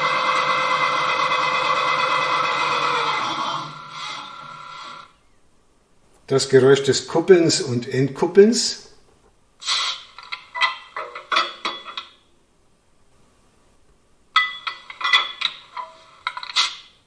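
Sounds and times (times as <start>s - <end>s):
metallic clanks and clinks: 10.5s - 12.2s, 14.4s - 16.6s.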